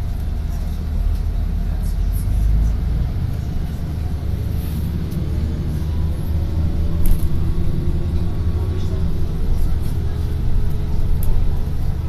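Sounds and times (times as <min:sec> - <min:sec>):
bus engine and road rumble: 0:00.0 - 0:12.0.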